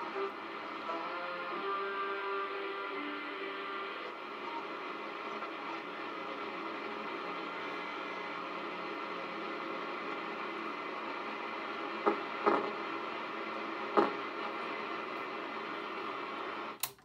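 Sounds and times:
radio static hiss: 0.0s - 16.8s
radio crackles: 0.0s - 16.9s
click: 16.8s - 17.0s.

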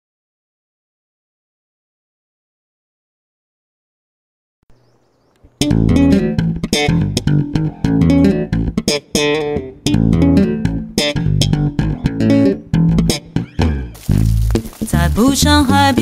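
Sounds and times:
plucked bass guitar line: 5.6s - 16.0s.

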